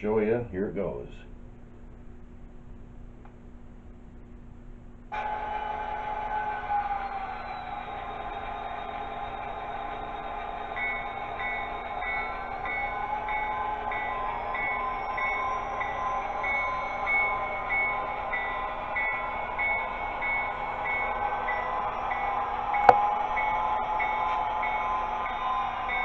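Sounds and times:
locomotive bell ringing: 9.6s - 26.0s.

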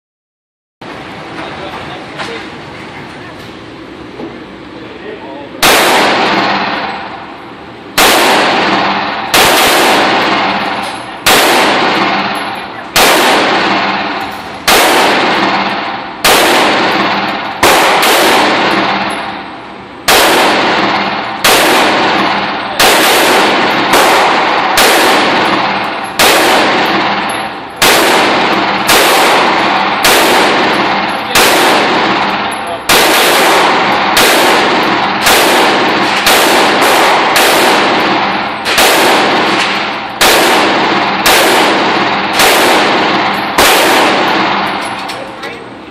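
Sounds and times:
rifle shots echoing indoors: 5.6s - 45.4s.

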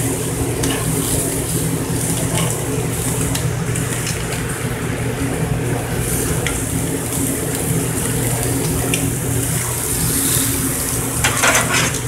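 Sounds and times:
chicken wings sizzling on a grill: 0.0s - 12.0s
low machine hum: 0.0s - 12.0s.

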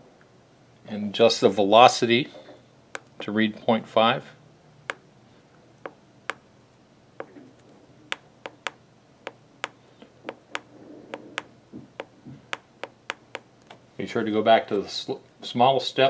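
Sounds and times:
keypad button clicks: 8.1s - 11.5s.

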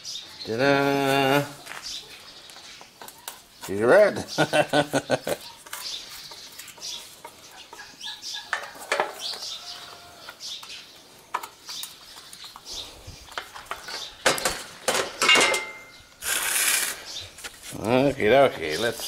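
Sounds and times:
birds chirping: 0.0s - 19.0s
sharp knocks and clatters: 13.4s - 15.9s.

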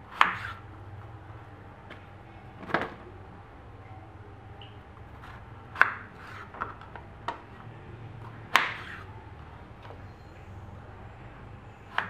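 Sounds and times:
knife cutting melon: 0.1s - 0.6s, 5.2s - 6.9s, 8.2s - 9.1s.

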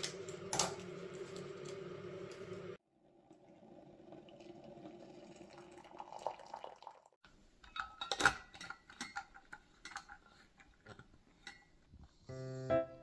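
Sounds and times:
water pouring into mug: 0.9s - 7.2s.

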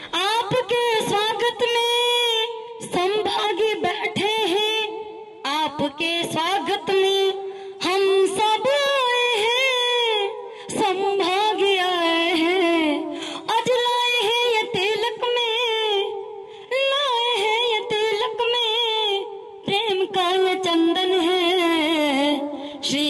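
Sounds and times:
singer breathing: 7.4s - 7.8s, 10.4s - 10.7s, 13.0s - 13.5s, 16.4s - 16.7s, 22.5s - 22.9s.

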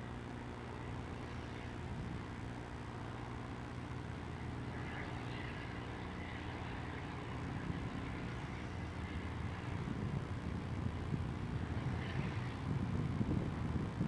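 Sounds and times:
diesel locomotives working hard: 0.0s - 14.0s.

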